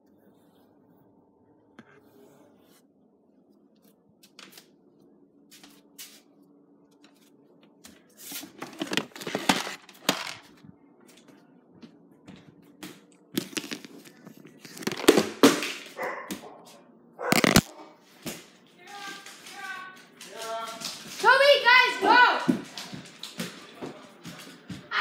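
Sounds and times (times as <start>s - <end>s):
plastic tub rustling and scraping: 8.1s - 10.6s, 13.4s - 15.9s, 17.2s - 17.7s
containers knocking and clicking: 8.6s - 10.4s, 13.4s - 14.0s, 14.6s - 15.8s, 17.3s - 17.7s.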